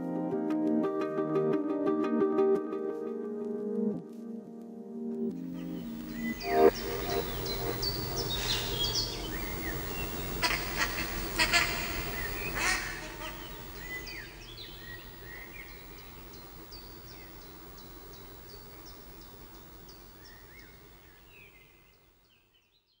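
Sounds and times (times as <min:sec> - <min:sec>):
low steady background noise: 0:05.3 - 0:22.6
birds chirping: 0:05.4 - 0:22.8.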